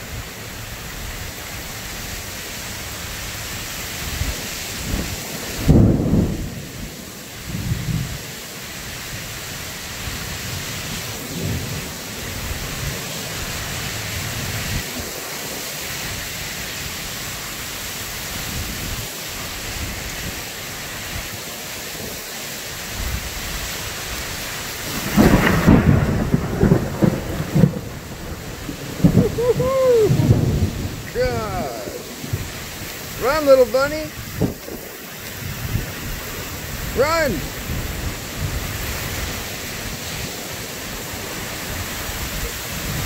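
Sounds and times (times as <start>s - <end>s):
heavy rain: 0.0s - 43.0s
thunder rumbling: 4.8s - 6.8s, 24.8s - 43.0s
loud thunder clap: 4.9s - 6.6s, 24.9s - 33.2s.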